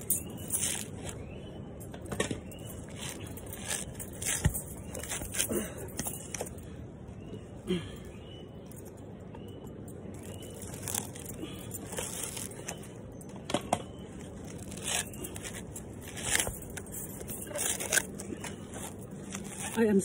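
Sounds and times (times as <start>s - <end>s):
coconut fibres tearing: 0.0s - 1.2s, 2.8s - 5.8s, 10.2s - 12.8s, 14.2s - 20.0s.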